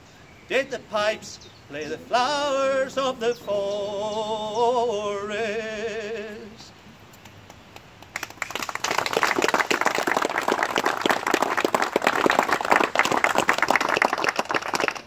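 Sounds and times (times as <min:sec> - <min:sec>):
crowd clapping: 0:07.5 - 0:15.0.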